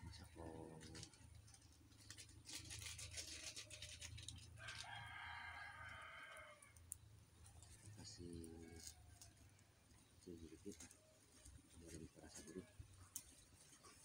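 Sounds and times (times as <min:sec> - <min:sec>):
soft crackling: 0:00.0 - 0:14.0
rooster crowing: 0:04.6 - 0:06.8.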